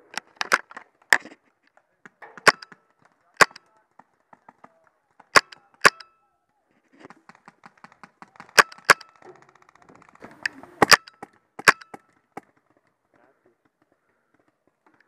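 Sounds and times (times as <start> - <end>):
paintball markers popping: 0.0 - 6.0, 7.0 - 12.8
distant rapid paintball fire: 7.1 - 14.8.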